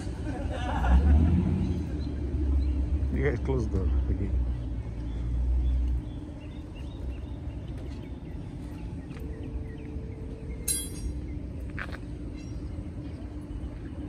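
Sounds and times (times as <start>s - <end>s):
low rumble of vehicles: 0.0s - 14.0s.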